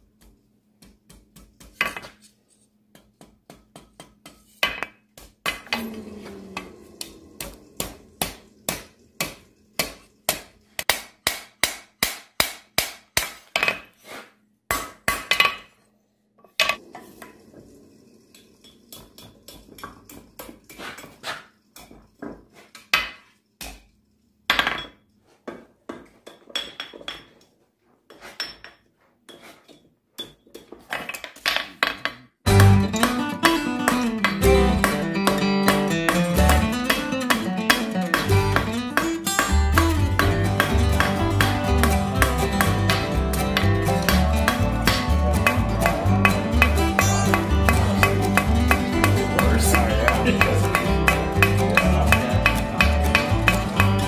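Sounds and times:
hammer striking steel on anvil: 7.0s - 13.8s, 32.5s - 52.2s.

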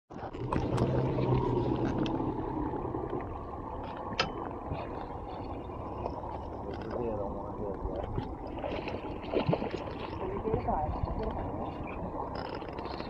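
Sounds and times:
water washing: 0.1s - 13.0s
boat engine humming: 0.2s - 13.0s.

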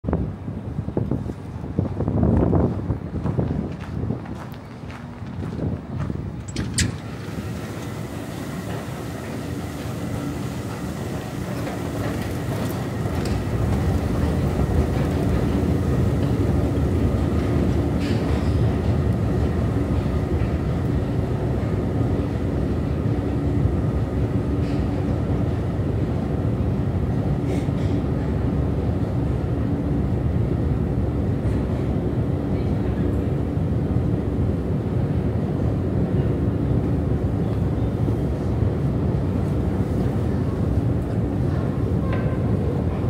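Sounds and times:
escalator mechanical rumble: 5.2s - 27.4s.

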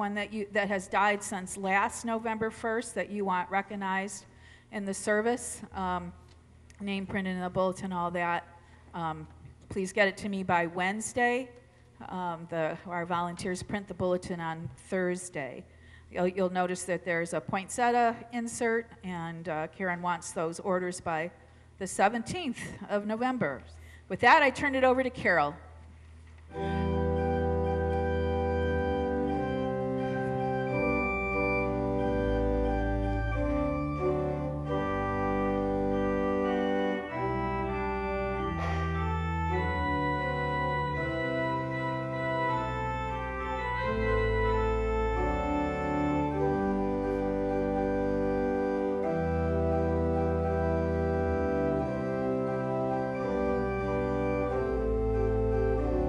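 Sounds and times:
organ playing sustained chords: 0.0s - 6.1s, 26.5s - 56.0s.

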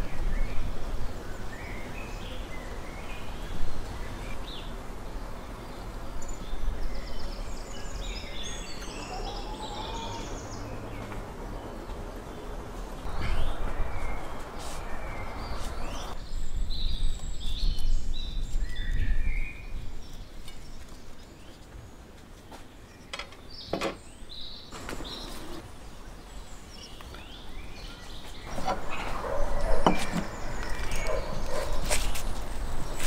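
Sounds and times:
wind rumble on microphone: 0.0s - 4.6s, 13.0s - 21.2s
birds chirping: 0.0s - 33.0s.

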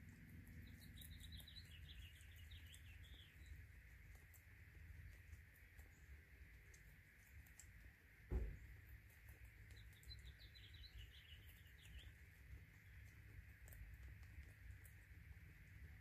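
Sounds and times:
guinea pigs chewing pellets: 0.0s - 16.0s
dull thump: 8.3s - 8.6s.

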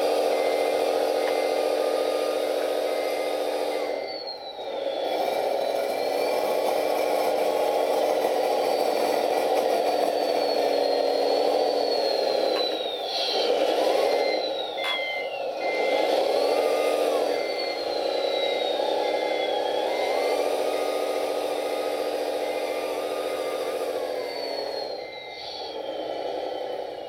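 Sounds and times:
diesel engine running: 0.0s - 27.0s
high whine gliding down: 0.0s - 27.0s
reverse beeper beeps: 10.0s - 20.4s, 24.1s - 27.0s.

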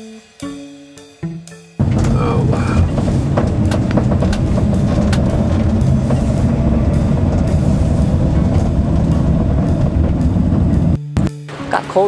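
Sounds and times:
sharp clicks or rattles: 1.8s - 11.0s
van road and engine rumble: 1.8s - 11.3s.

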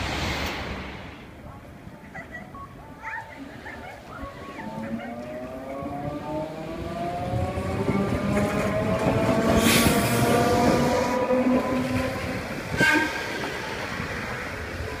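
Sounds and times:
streetcar motors whining: 3.4s - 15.0s.

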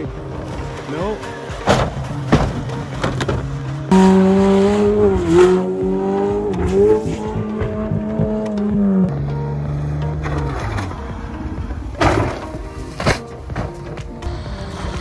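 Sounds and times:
car engine at high revs: 3.9s - 11.9s.

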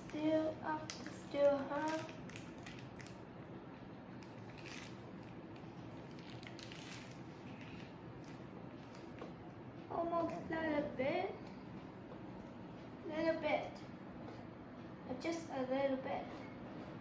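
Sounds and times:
plastic piping bag crinkling: 0.8s - 3.4s, 4.2s - 9.2s.

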